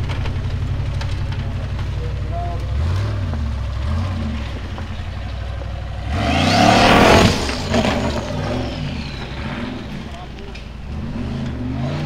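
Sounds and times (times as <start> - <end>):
buggy engine revving: 0.0 - 12.0.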